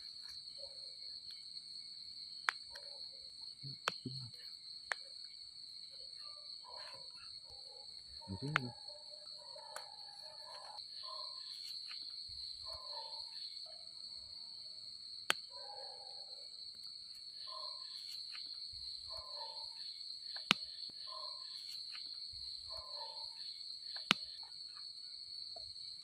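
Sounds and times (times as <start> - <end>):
night insects trilling: 0.0 - 26.0
sharp clicks: 3.8 - 4.2, 8.4 - 8.7.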